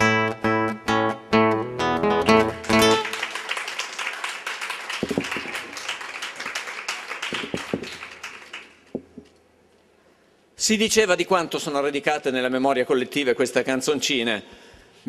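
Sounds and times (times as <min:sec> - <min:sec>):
acoustic guitar chords: 0:00.0 - 0:03.2
audience applauding: 0:02.4 - 0:08.9.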